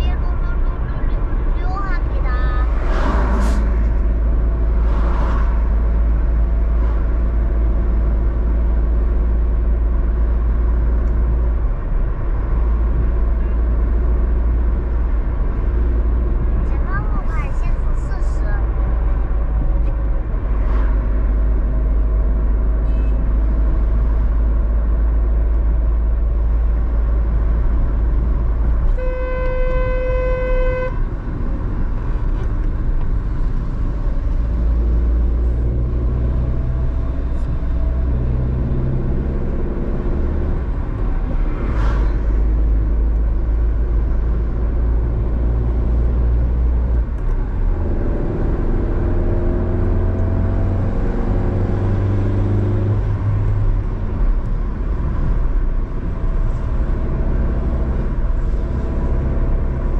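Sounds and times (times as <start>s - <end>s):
car road and engine rumble: 0.0s - 59.9s
vehicle horn: 28.9s - 31.1s.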